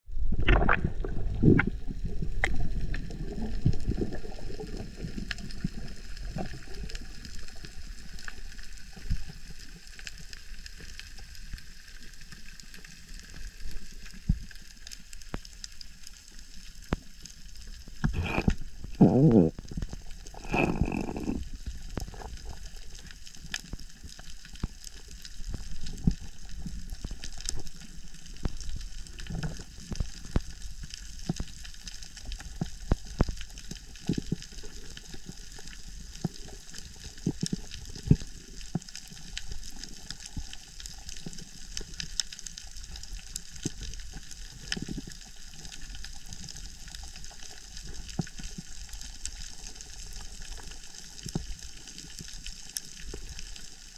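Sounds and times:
sharp clicks and crackles: 0.2 - 53.9
underwater hiss of water: 15.8 - 53.9.

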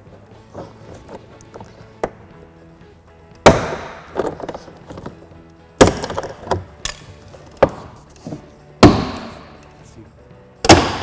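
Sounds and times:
plastic clips snapping loose: 3.3 - 7.8.

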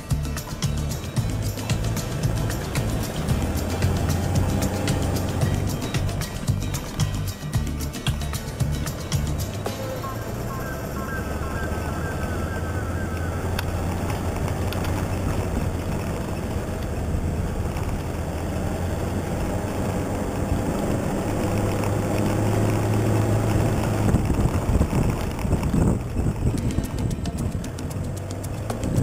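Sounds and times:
vehicle knocks and rattles: 0.0 - 9.8
vehicle engine droning: 0.0 - 29.0
vehicle jolts: 0.0 - 29.0.

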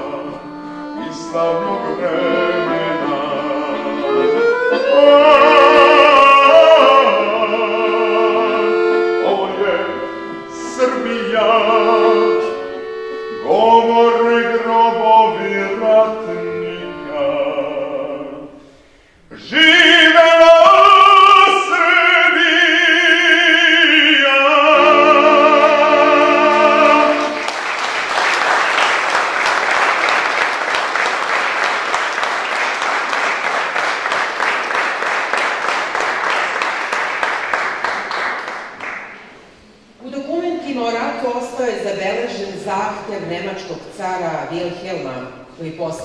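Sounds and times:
button accordion: 0.0 - 18.6, 23.6 - 38.7
audience applause: 26.5 - 39.4.

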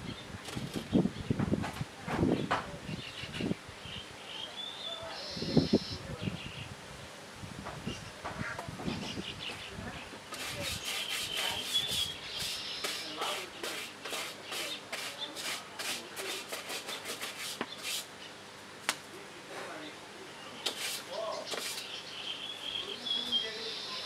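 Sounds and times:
rough scraping strokes: 10.3 - 18.1, 20.6 - 21.9.

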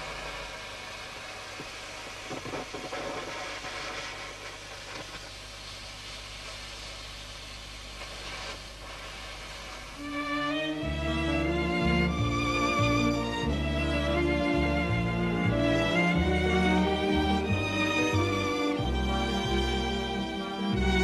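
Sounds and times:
crackling: 0.0 - 10.8.

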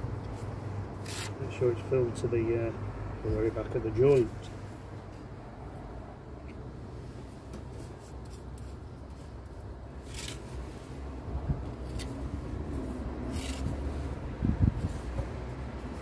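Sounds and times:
low steady rumble: 0.0 - 16.0
steel tool scraping mortar: 1.0 - 1.4.

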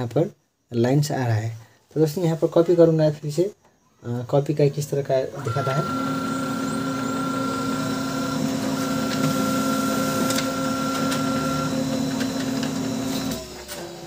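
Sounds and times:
printer motor hum with whine: 5.2 - 14.0.

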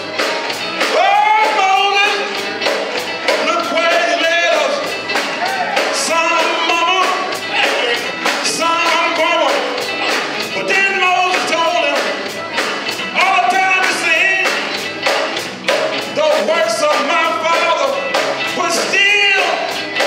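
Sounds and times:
electric guitar: 0.0 - 20.0
steady drum beat: 0.0 - 20.0
man singing gospel: 0.8 - 2.6, 3.2 - 12.3, 13.0 - 14.8, 16.1 - 20.0.

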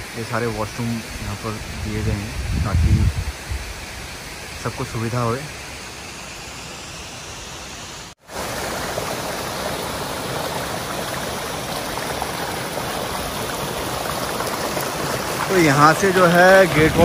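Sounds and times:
stream running over gravel: 8.1 - 17.0.

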